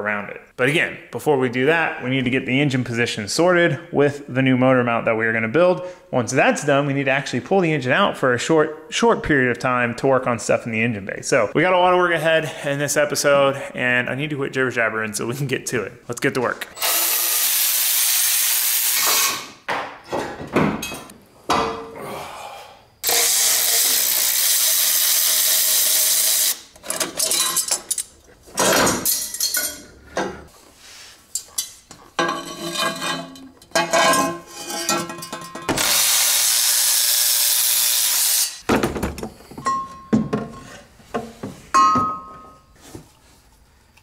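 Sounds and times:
cordless ratchet spinning: 23.0s - 26.6s.

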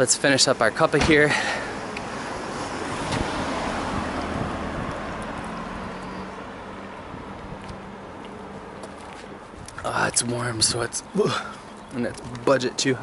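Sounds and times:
vehicle passing by: 1.3s - 9.5s.

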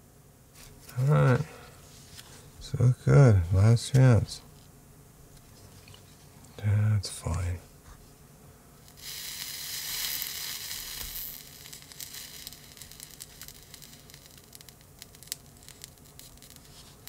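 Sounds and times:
faint crackles: 8.8s - 17.0s
solder sizzling: 8.8s - 17.0s.

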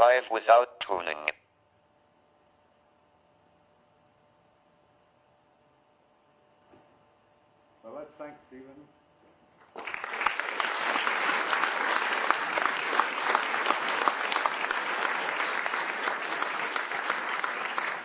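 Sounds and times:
audience applauding: 9.6s - 18.0s.

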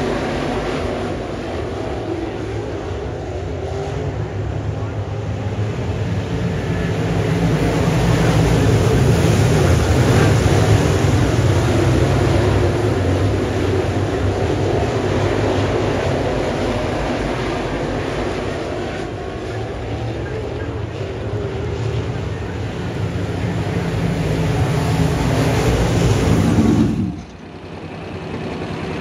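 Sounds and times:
race car engines: 0.0s - 29.0s.

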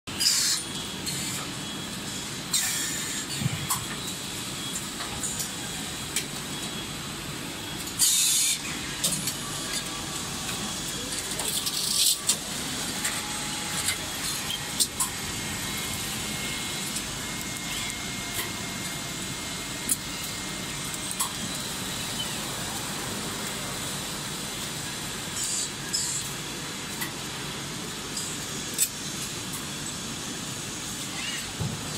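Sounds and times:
machine clicks and clanks: 7.7s - 15.2s
machine hum: 9.8s - 25.2s.

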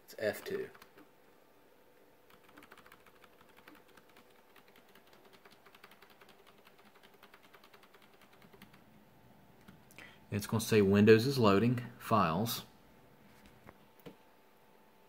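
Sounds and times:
keyboard key clicking rapidly: 0.2s - 1.1s, 2.3s - 8.9s.

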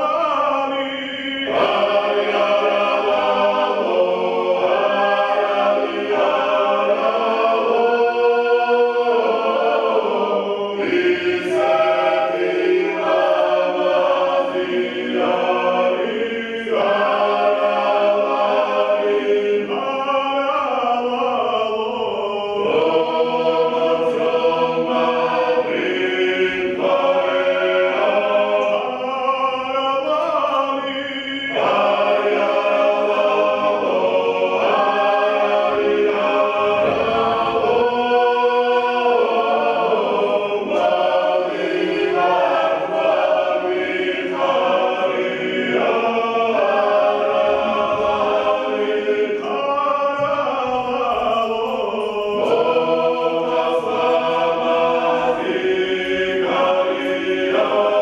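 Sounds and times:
choir singing folk song: 0.0s - 58.0s.

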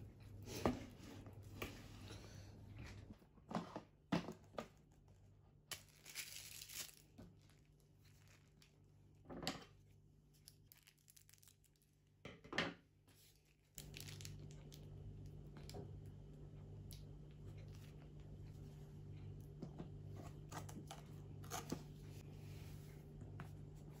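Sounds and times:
low steady hum: 0.0s - 3.5s, 13.0s - 24.0s
foil crinkling: 5.7s - 8.7s, 13.8s - 14.8s.

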